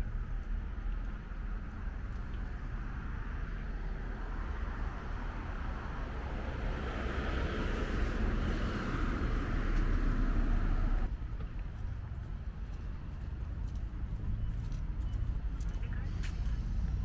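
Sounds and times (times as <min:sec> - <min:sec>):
vehicle passing: 0:00.0 - 0:11.1.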